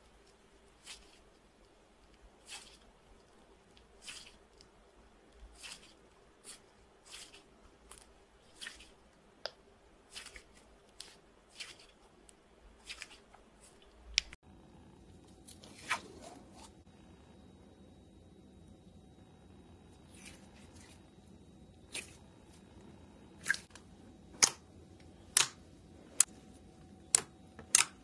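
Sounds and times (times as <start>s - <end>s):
slime squishing: 0.7s - 4.8s, 5.4s - 14.3s.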